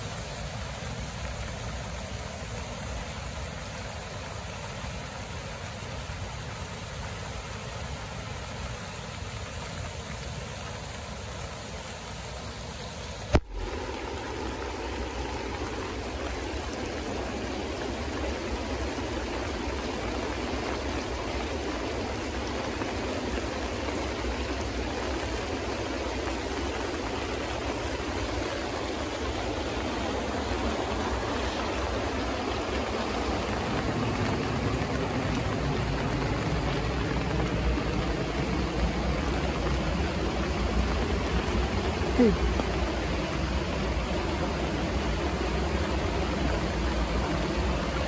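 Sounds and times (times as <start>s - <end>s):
floodwater rushing down a creek: 0.0s - 48.0s.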